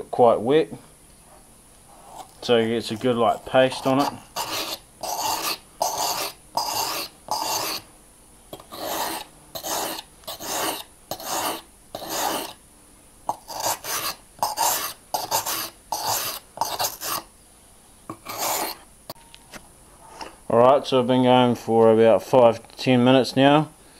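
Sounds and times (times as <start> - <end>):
knife blade scraping on whetstone: 2.0 - 7.8, 8.6 - 12.6, 13.3 - 17.3, 18.1 - 18.8.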